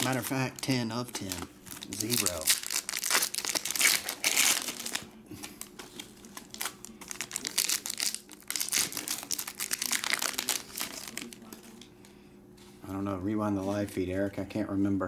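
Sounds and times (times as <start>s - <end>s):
foil wrappers crinkling: 0.0s - 11.9s.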